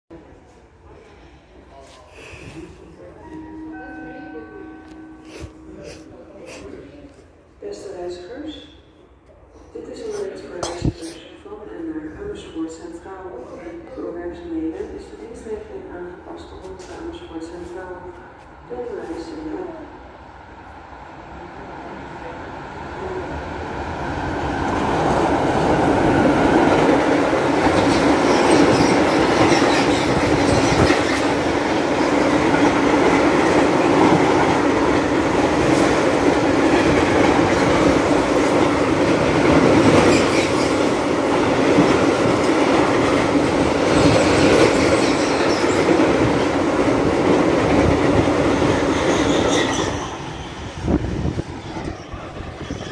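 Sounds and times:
freight train rumble: 21.2 - 52.9.

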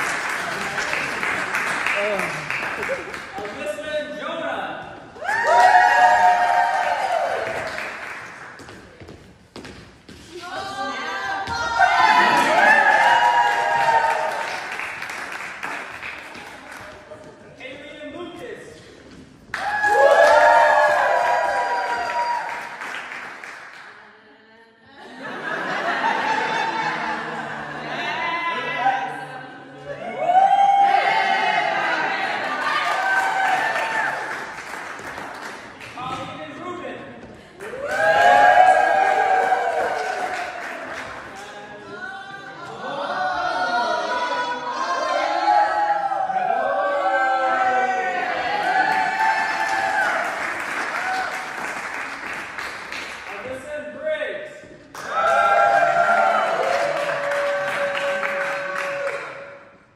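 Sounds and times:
people clapping: 0.0 - 4.0, 5.1 - 9.1, 10.5 - 17.6, 19.1 - 24.1, 30.3 - 36.5, 37.2 - 41.8, 47.8 - 59.9
people laughing: 2.0 - 3.3, 24.9 - 29.4
crowd cheering and whooping: 5.2 - 8.0, 10.5 - 15.0, 19.5 - 22.8, 25.4 - 34.6, 37.6 - 41.3, 43.0 - 51.6, 55.0 - 59.7.

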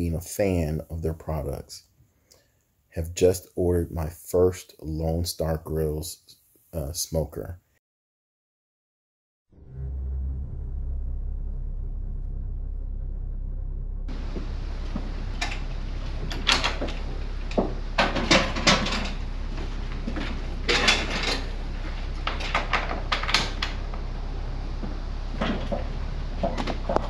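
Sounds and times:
steady low hum: 9.6 - 27.0
clattering knocks and clicks: 14.1 - 24.1, 24.8 - 27.0.

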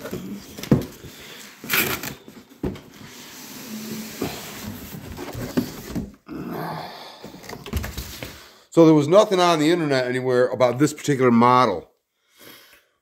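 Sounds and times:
cardboard rustling and bumping: 4.1 - 6.2.

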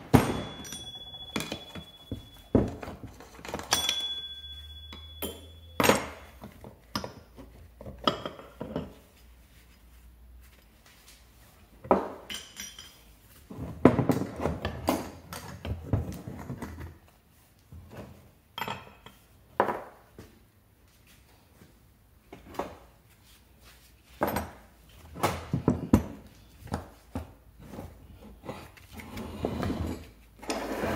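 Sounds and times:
metal tools clinking and knocking: 0.0 - 9.0, 12.2 - 13.1.

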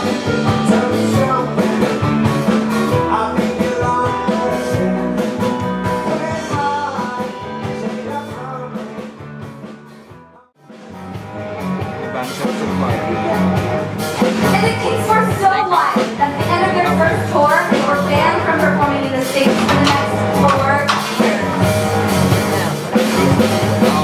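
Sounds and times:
person singing: 0.0 - 9.2
drums: 0.0 - 24.0
electric guitars: 0.0 - 24.0
keyboards: 0.0 - 24.0.

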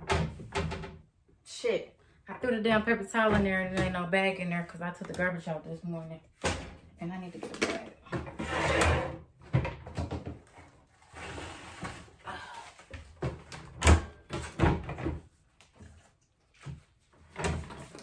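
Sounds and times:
cabinet doors knocking and banging: 0.0 - 1.1, 7.6 - 10.5, 13.1 - 15.3.

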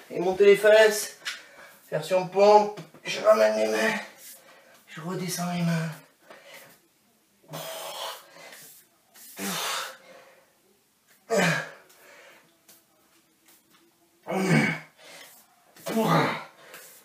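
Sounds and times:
man grunting: 11.3 - 11.8, 14.3 - 14.9, 15.8 - 16.6.

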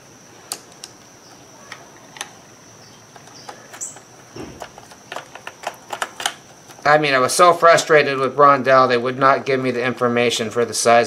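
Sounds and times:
faint high whine and hiss: 0.0 - 11.0
screwdriver and plastic parts clicking: 3.1 - 6.8.

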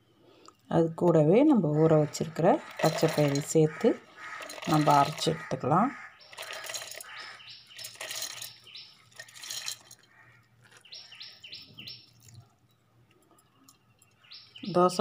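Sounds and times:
small bird chirping: 4.1 - 12.6, 13.4 - 15.0.

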